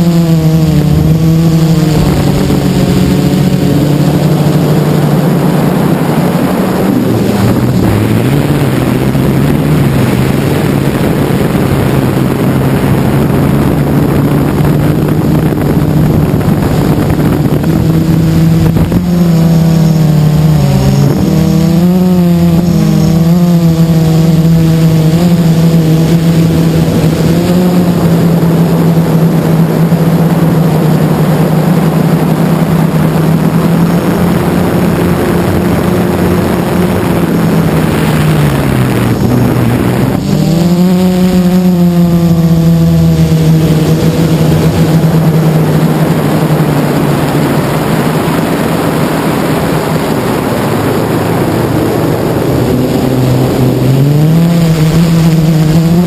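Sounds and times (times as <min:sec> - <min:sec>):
quadcopter motors whining: 0:00.0 - 0:56.0.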